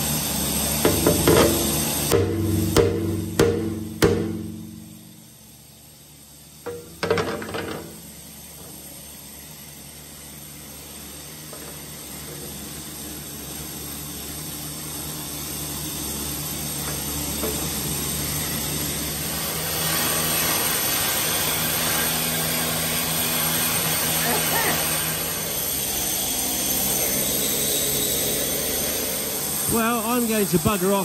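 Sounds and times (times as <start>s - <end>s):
machine humming: 0.0s - 30.8s
hammer striking metal spanner: 0.8s - 5.0s, 6.6s - 8.0s.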